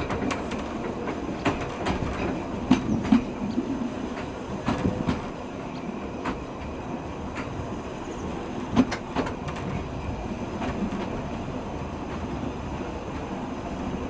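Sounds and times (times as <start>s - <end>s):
wheels clicking over rail joints: 0.0s - 7.6s, 8.3s - 11.2s
train rumbling: 0.0s - 14.0s.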